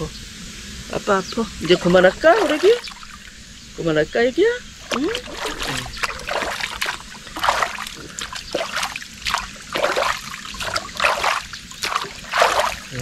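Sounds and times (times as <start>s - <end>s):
water splashing: 1.4s - 3.9s, 4.6s - 13.0s.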